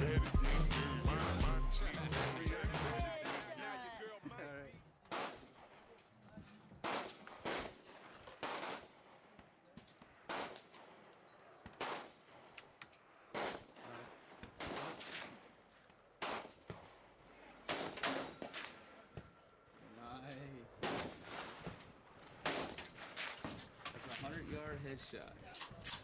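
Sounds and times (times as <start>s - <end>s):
rifle shots echoing: 5.1s - 6.0s, 6.8s - 9.4s, 10.0s - 19.0s, 20.8s - 23.8s.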